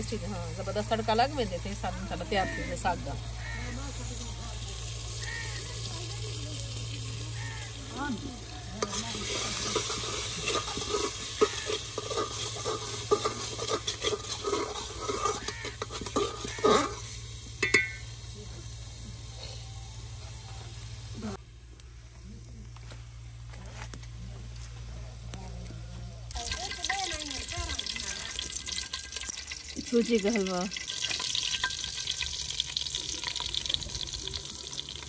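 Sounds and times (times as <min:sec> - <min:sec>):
spices sizzling in hot oil: 0:00.0 - 0:21.9, 0:26.2 - 0:35.0
spoon scraping against pan: 0:08.8 - 0:18.0.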